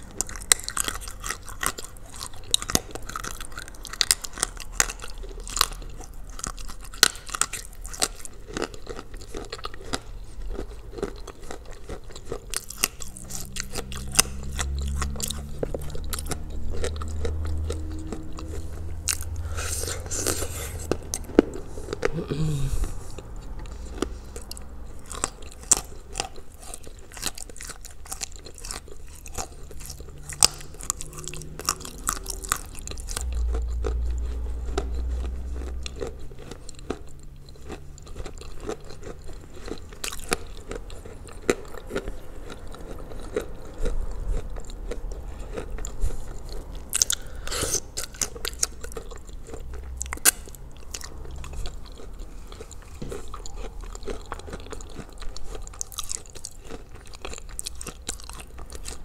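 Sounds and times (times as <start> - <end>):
chalk crunching and chewing: 0.0 - 59.0
low hum: 9.1 - 27.0.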